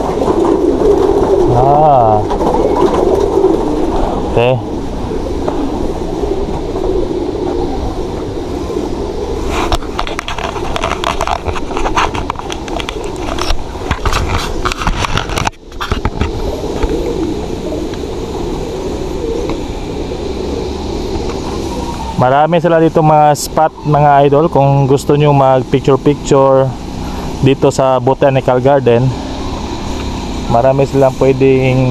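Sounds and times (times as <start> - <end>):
crackling and clicking: 9.5 - 17.3.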